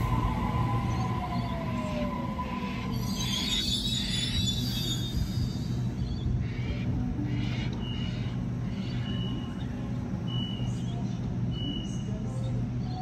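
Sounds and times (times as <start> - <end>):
electric train humming: 0.0 - 13.0.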